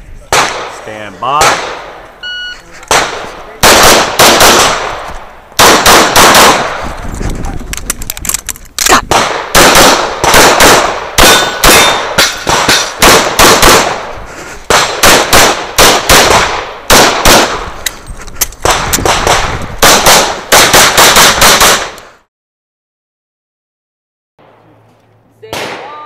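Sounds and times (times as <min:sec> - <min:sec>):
pistol shots: 0:01.4 - 0:02.0, 0:02.9 - 0:06.8, 0:08.9 - 0:14.1, 0:14.7 - 0:17.8, 0:18.6 - 0:22.0.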